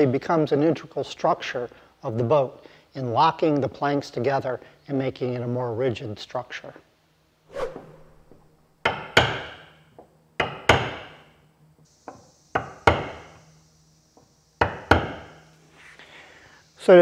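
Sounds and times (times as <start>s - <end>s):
mallet striking steel caulking iron: 8.8s - 9.7s, 10.4s - 11.2s.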